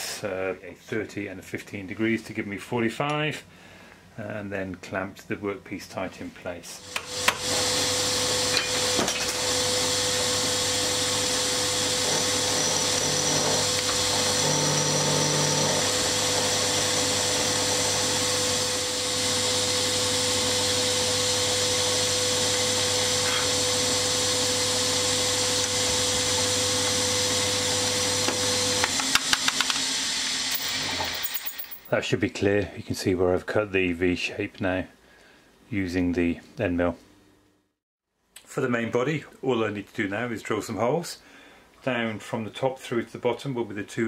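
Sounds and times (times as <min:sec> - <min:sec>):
milling machine cutting metal: 0:06.9 - 0:31.8.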